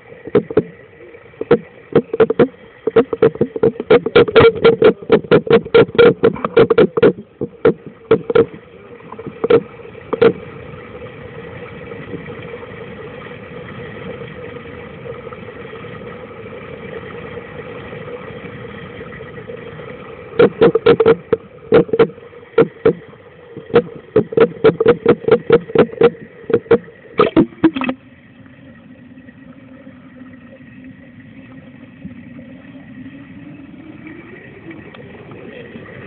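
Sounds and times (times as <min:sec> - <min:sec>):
steady dull water rush: 0:00.0 - 0:36.0
muffled knocking on hard case: 0:23.6 - 0:27.9.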